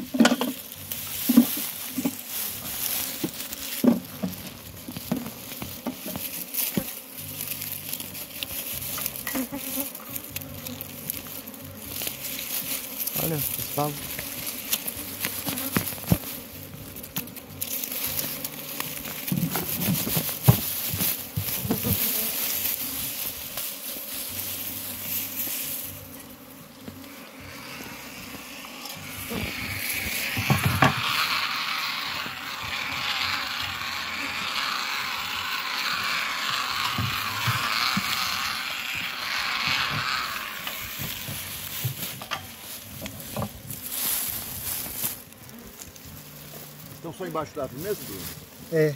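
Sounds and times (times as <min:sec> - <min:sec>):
knocks and rustles: 0:00.0 - 0:07.1, 0:12.4 - 0:23.7, 0:30.0 - 0:31.1, 0:39.6 - 0:45.2
bees buzzing: 0:00.0 - 0:48.7.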